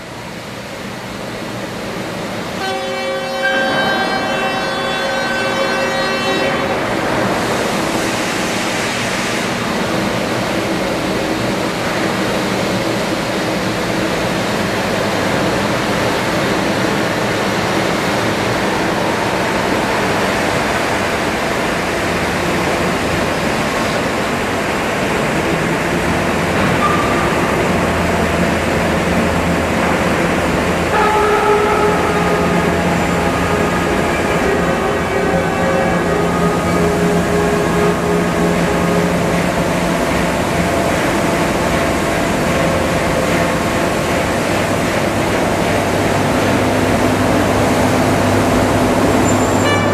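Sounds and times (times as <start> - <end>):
train rumbling: 0.0 - 49.9
horn-like tone: 2.6 - 7.1, 30.9 - 39.7, 47.7 - 49.9.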